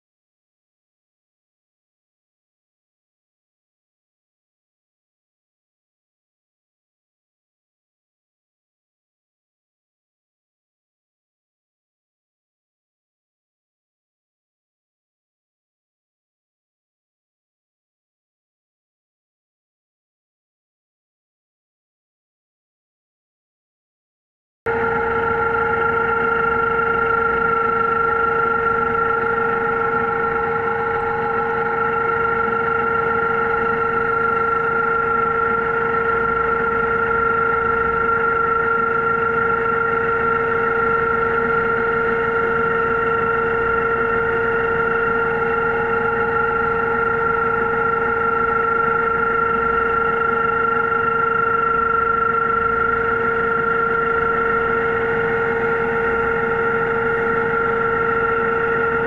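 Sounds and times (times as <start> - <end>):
underwater motor whine: 24.7 - 59.0.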